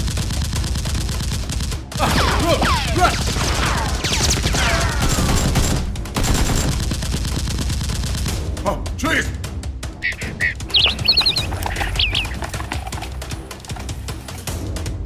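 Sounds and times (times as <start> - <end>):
rapid gunfire sound effects: 0.0 - 8.6, 10.0 - 14.4
falling whistles: 10.0 - 12.8.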